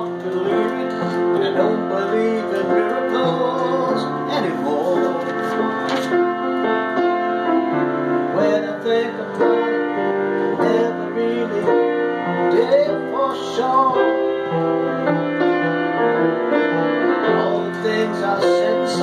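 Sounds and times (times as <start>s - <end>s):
man singing: 0.0s - 6.2s, 8.3s - 14.5s, 17.2s - 19.0s
piano playing slow ballad: 0.0s - 19.0s.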